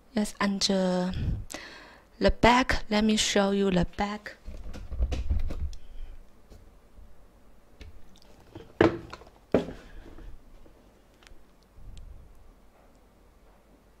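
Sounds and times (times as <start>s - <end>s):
sneakers knocking on tabletop: 8.6s - 9.8s.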